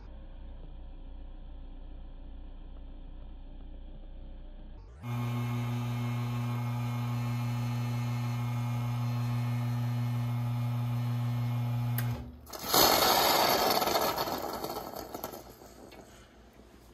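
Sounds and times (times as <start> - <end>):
espresso machine pump humming: 5.0 - 13.8.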